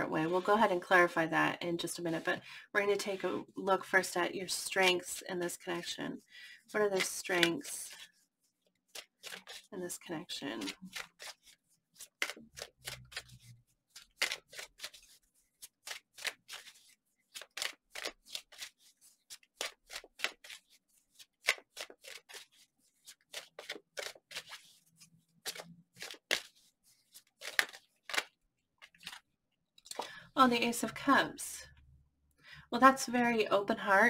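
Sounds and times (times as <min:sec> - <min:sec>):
cards being shuffled: 0:06.9 - 0:08.2, 0:08.8 - 0:29.3.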